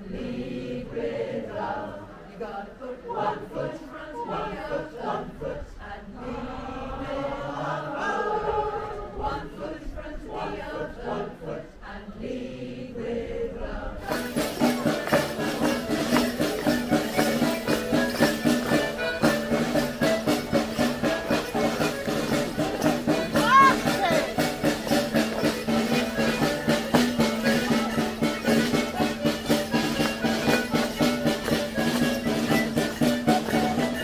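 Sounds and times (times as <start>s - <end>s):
choir singing unaccompanied: 0.0s - 34.0s
folk dance music: 14.0s - 34.0s.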